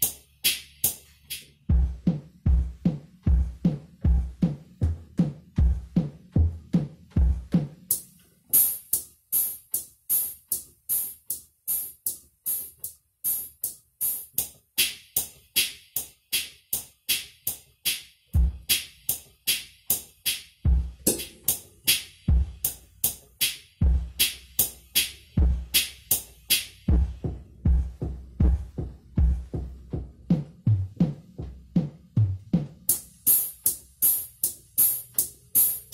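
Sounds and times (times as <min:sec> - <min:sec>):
low bass-drum beats: 0:00.0 - 0:08.0, 0:17.1 - 0:35.9
electronic drum ticking beat: 0:00.0 - 0:35.9.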